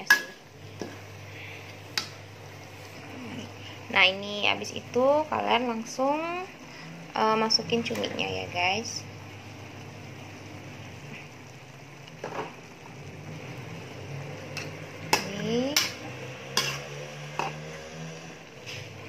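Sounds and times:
soft sizzle: 0.0 - 19.0
metal spatula scraping a wok: 15.7 - 18.9.

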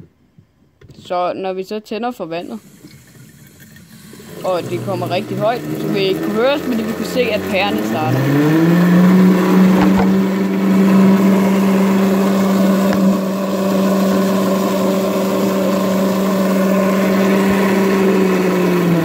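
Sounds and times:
water jet rushing and splashing: 2.6 - 19.0
turbine generator humming: 4.4 - 19.0.

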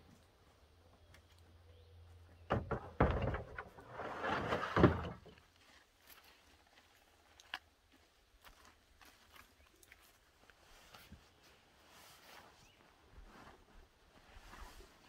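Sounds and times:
knocks and thuds: 2.5 - 3.6.

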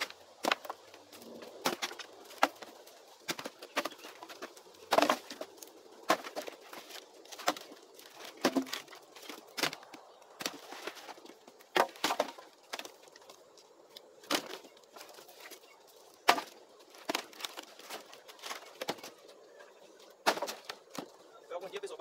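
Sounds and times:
dry wood cracking: 0.0 - 21.9.

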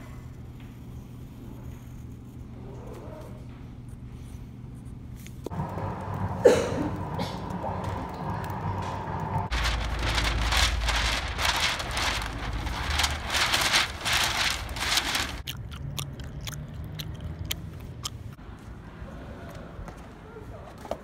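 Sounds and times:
paper sheet rustling and flapping: 7.6 - 15.5
wind rumbling on microphone: 9.4 - 15.4
close-up chewing clicks: 15.4 - 18.4.

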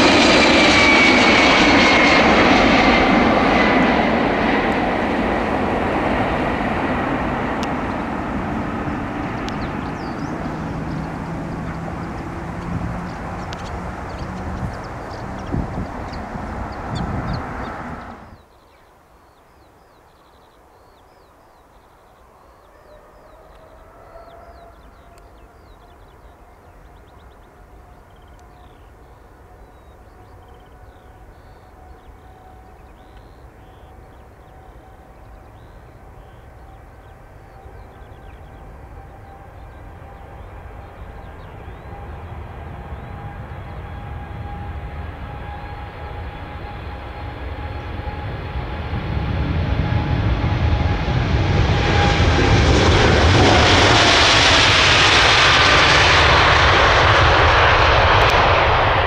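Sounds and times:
jet engines whining: 0.0 - 18.5, 22.2 - 59.0
low rumble: 4.4 - 18.4
birds chirping faintly: 7.7 - 44.2.

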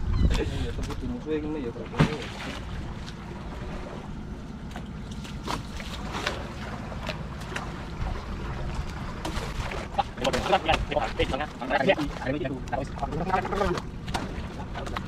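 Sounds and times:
wind on microphone: 0.0 - 1.1
boat engine running: 0.0 - 15.0
short knocks or splashes: 1.8 - 3.2, 4.7 - 12.2, 13.6 - 15.0.

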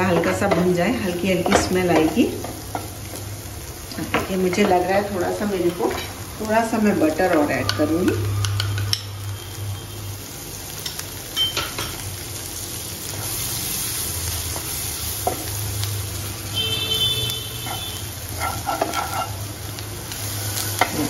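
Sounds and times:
food sizzling in a pan: 0.0 - 21.0
wooden spatula scraping a pan: 17.6 - 19.4.

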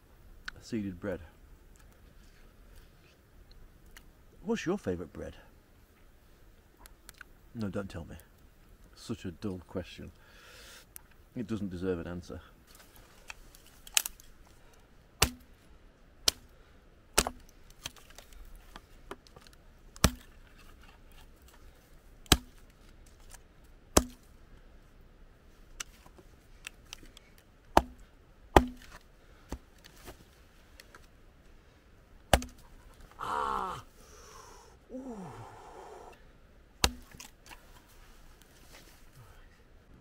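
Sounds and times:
hatchet chopping wood: 15.2 - 15.5, 17.2 - 18.0, 20.0 - 20.3, 22.3 - 22.6, 24.0 - 24.3, 27.7 - 29.6, 32.3 - 32.6, 36.8 - 37.3.

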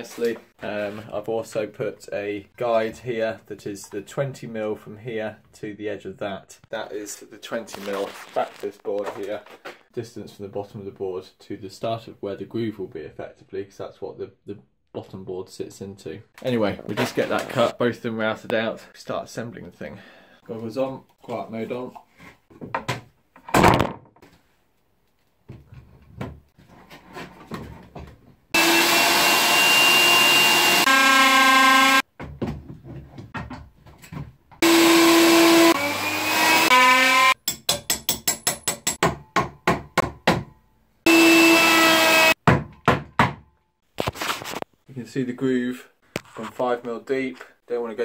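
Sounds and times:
router whining: 28.6 - 32.0, 34.6 - 37.4, 41.1 - 42.4.

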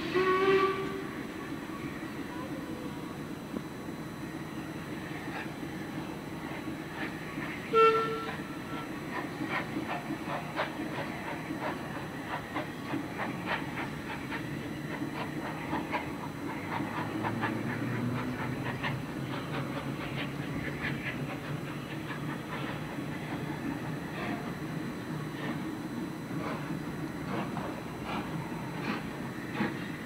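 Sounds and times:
diesel engine running low: 5.0 - 26.6.

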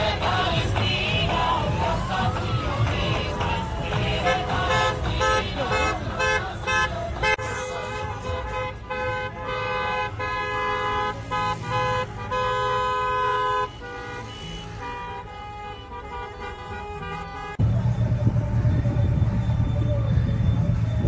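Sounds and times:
car horns honking: 0.0 - 17.9
road traffic rumble: 0.0 - 21.0.

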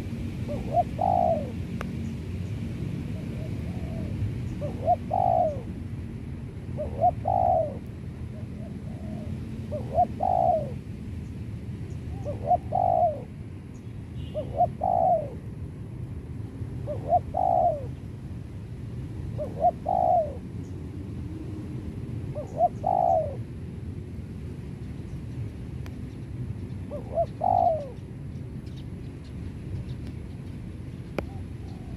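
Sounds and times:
dove cooing: 0.0 - 1.7, 3.0 - 5.8, 6.7 - 10.8, 12.1 - 13.4, 14.2 - 15.5, 16.8 - 18.0, 19.3 - 20.6, 22.3 - 23.5, 26.7 - 28.8, 31.0 - 31.9.

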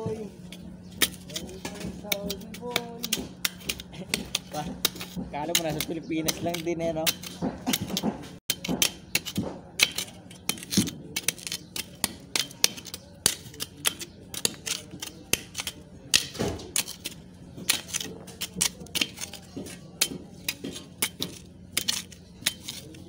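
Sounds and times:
bar knocking on rusted steel: 0.6 - 10.9.

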